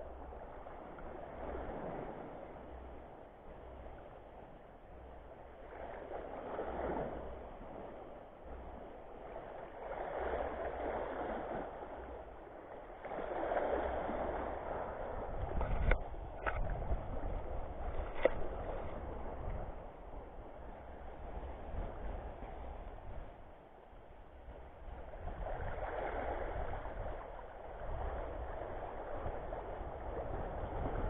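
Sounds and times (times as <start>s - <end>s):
wind rumbling on microphone: 0.0s - 31.0s
waves washing over rocks: 9.2s - 19.8s, 24.8s - 31.0s.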